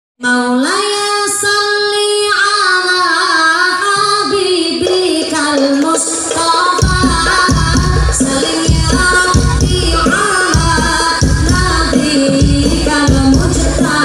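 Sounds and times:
woman singing into a microphone: 0:00.2 - 0:14.0
low drum beats: 0:06.7 - 0:14.0.

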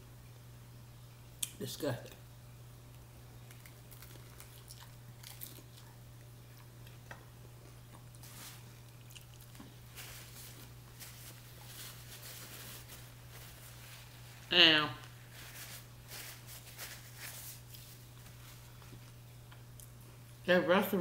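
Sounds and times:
steady low hum: 0:00.0 - 0:21.0
chewing and crunching food: 0:03.4 - 0:14.2.

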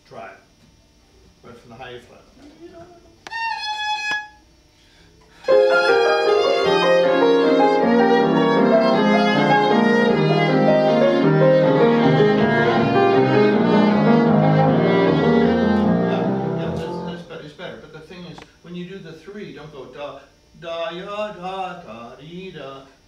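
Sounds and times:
bowed viola: 0:03.2 - 0:04.4, 0:05.4 - 0:17.2
piano accompaniment: 0:05.4 - 0:17.3.

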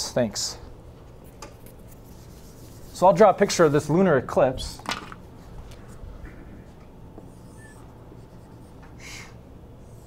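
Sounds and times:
low room hum: 0:00.0 - 0:10.0
marker scratching on whiteboard: 0:01.8 - 0:03.0.

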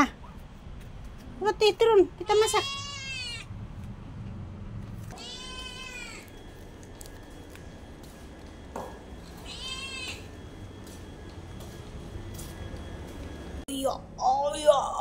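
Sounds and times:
kitten meowing: 0:02.3 - 0:03.4, 0:05.1 - 0:06.3.

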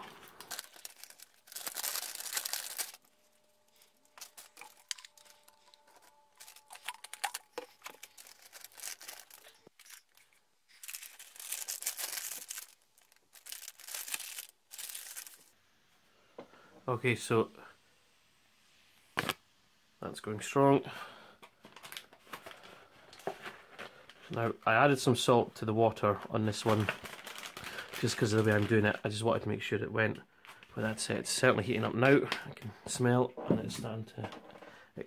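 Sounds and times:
plastic bags tearing and crinkling: 0:00.0 - 0:15.5, 0:26.5 - 0:29.0.

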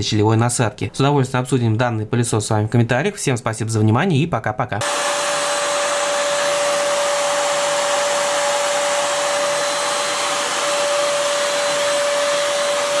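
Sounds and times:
stick vacuum cleaner running: 0:04.8 - 0:13.0.

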